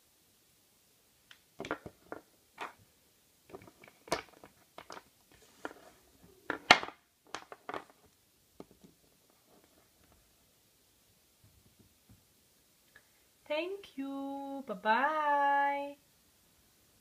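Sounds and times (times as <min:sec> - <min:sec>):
plastic figurines clicking on table: 0:03.5 - 0:05.1.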